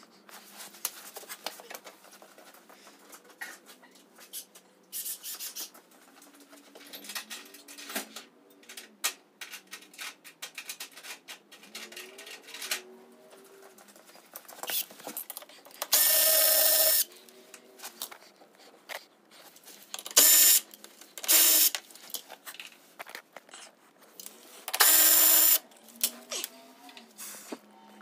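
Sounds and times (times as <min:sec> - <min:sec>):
cordless power tool spinning: 0:15.9 - 0:17.0, 0:21.3 - 0:21.7, 0:24.7 - 0:25.6.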